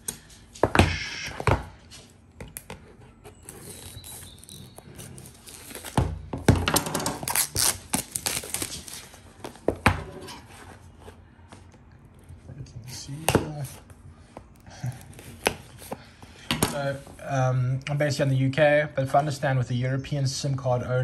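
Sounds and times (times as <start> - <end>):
plastic wrap crinkling: 3.3 - 6.0, 7.2 - 9.5.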